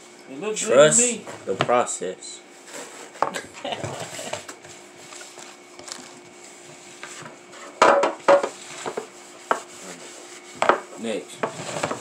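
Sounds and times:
spatula scraping plastic bowl: 11.4 - 12.0.

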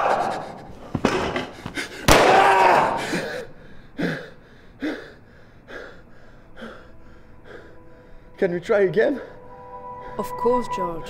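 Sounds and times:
pistol shots: 2.1 - 2.5
man crying out: 2.1 - 3.5.

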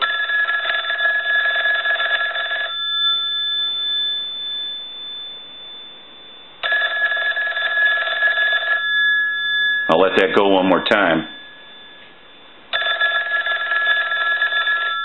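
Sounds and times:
telephone bells ringing: 0.0 - 15.0.

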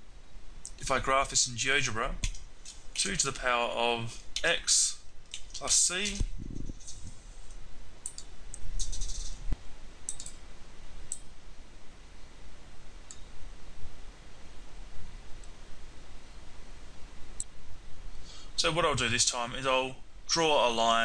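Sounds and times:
computer mouse clicking: 10.1 - 10.4.

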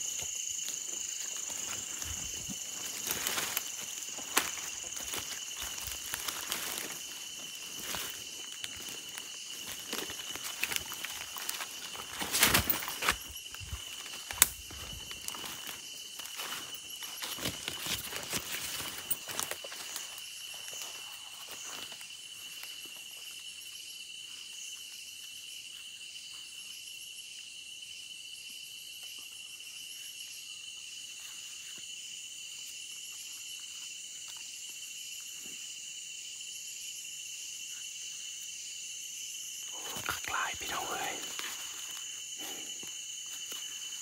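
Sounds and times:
insects chirring: 0.0 - 44.0
footsteps in dry leaves: 0.6 - 20.0, 39.7 - 42.0.

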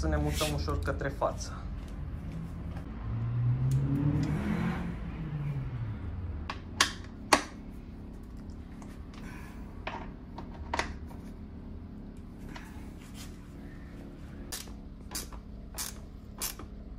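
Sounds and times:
low hum: 0.8 - 16.9.

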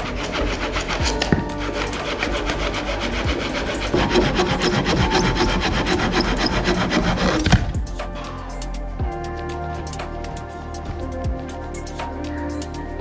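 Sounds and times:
rasp scraping wood: 0.0 - 8.3.

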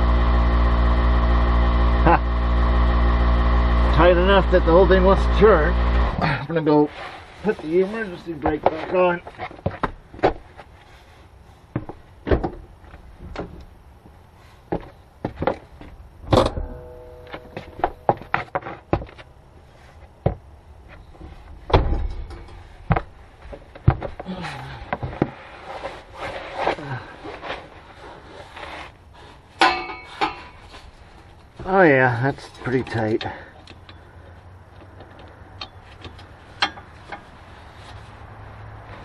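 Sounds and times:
knocks and clunks: 11.7 - 13.7, 14.7 - 19.3, 20.2 - 25.4.

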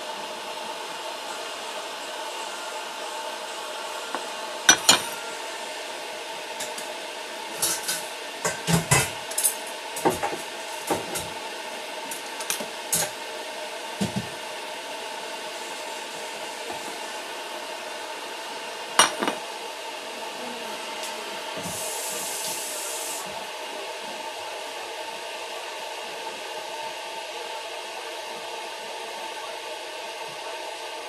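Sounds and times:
dishes and utensils clinking: 4.2 - 5.3, 19.0 - 19.4.

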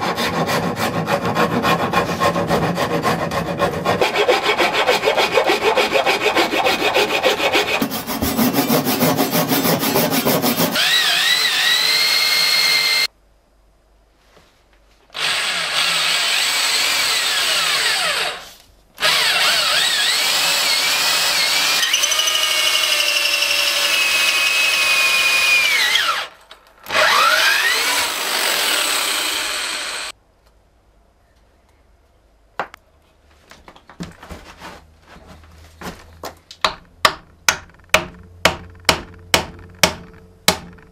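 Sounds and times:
hand file rasping on wood: 0.0 - 10.8
electric drill boring into wood: 10.7 - 13.1, 15.2 - 18.4, 19.0 - 30.1.

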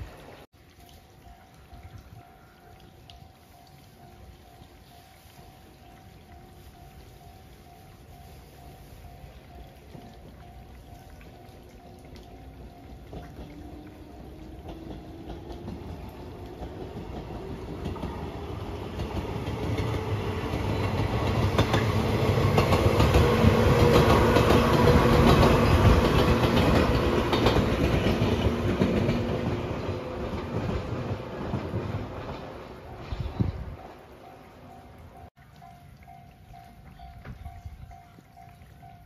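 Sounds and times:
electric train passing: 1.2 - 39.0
wheels clattering over rails: 14.4 - 33.4.

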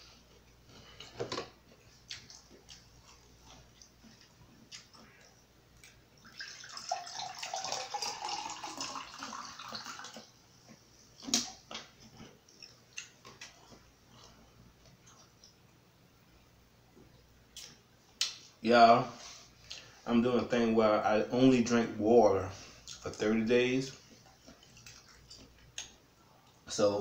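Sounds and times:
water pouring into a glass: 6.2 - 10.3.

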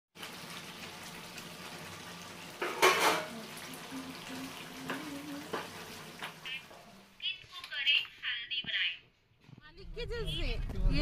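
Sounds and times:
spoon scraping in frying pan: 2.6 - 3.3
steel plate clattering on stovetop: 2.6 - 3.4.

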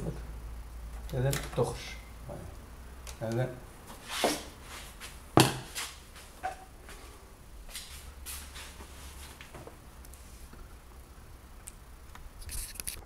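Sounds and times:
soft rustling strokes: 3.8 - 10.8.

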